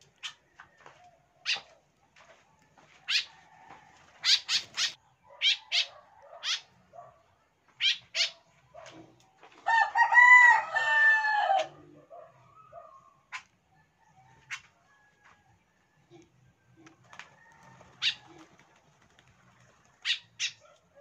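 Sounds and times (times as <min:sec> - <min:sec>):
swallows chirping: 0:04.2 - 0:06.6
rooster crowing: 0:09.6 - 0:11.9, 0:17.0 - 0:18.5.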